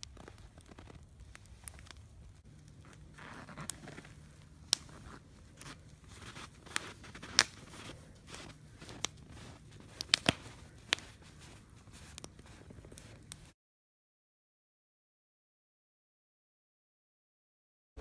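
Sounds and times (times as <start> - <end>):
burning wood popping: 0.0 - 13.5
campfire crackling: 0.0 - 13.6.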